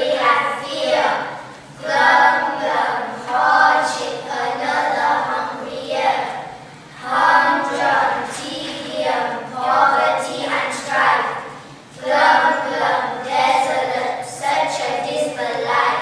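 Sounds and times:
children singing together: 0.0s - 16.0s.

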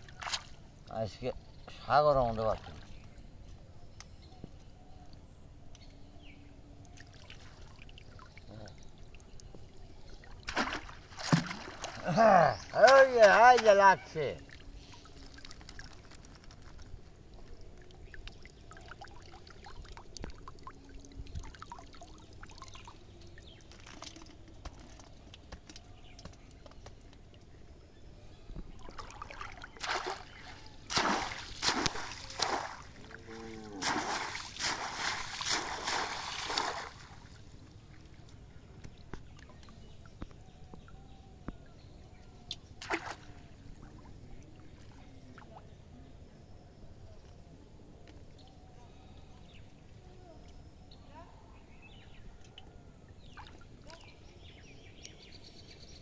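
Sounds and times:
water sloshing from wading: 0.0s - 1.2s, 6.5s - 27.7s, 28.3s - 45.9s
loud splashes: 10.4s - 13.0s, 29.0s - 33.0s, 33.7s - 37.2s.

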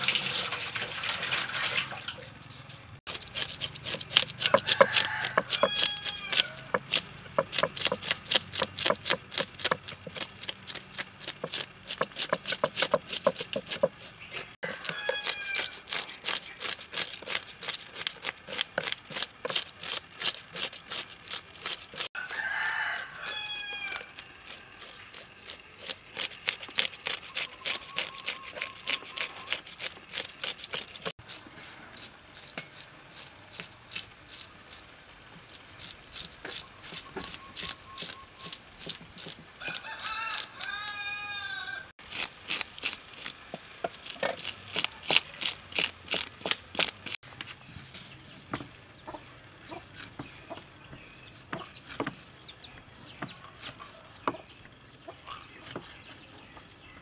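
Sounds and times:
fish scaler scraping scales: 3.1s - 41.4s
rooster crowing: 4.4s - 6.8s, 14.6s - 15.8s, 22.2s - 24.1s, 39.6s - 41.9s.

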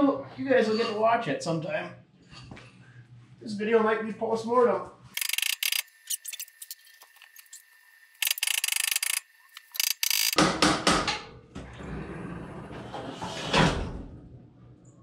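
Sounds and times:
hoist ratcheting clicks: 5.2s - 7.5s, 8.2s - 10.4s.

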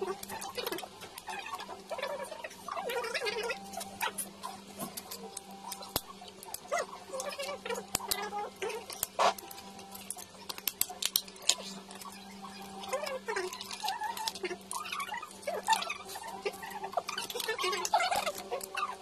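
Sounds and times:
crab shell cracking: 4.8s - 19.0s.

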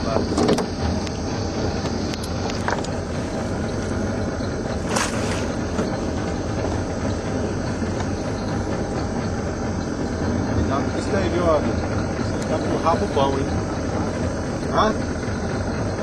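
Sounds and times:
engine humming: 0.0s - 16.0s
short rushing noise: 4.8s - 5.8s.

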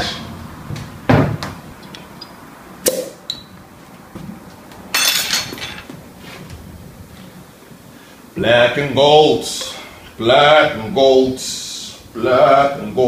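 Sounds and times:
glass clinking: 4.9s - 5.9s.

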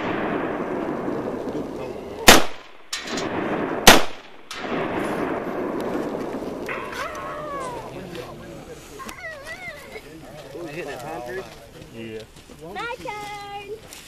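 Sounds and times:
rifle shots: 0.0s - 7.3s.

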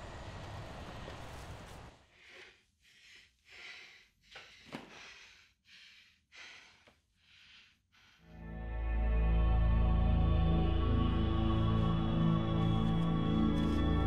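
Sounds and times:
woman breathing heavily: 2.0s - 8.4s
music: 8.2s - 14.0s.

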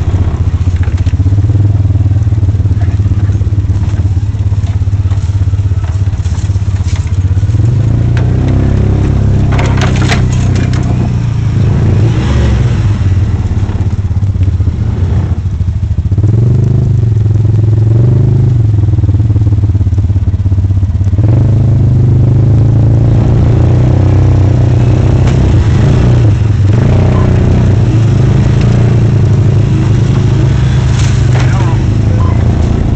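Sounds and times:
knocks and rattles: 0.0s - 12.5s, 24.8s - 32.9s
off-road vehicle engine running: 0.0s - 32.9s.

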